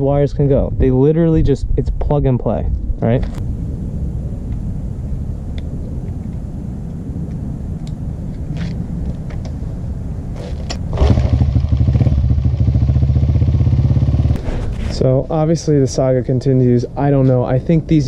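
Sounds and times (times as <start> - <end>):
small motorcycle engine running: 10.9 - 14.4.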